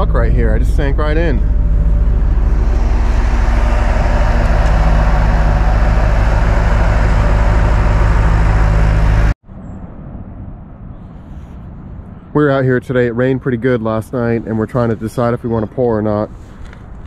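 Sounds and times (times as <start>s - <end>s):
diesel engine running: 0.0s - 9.4s.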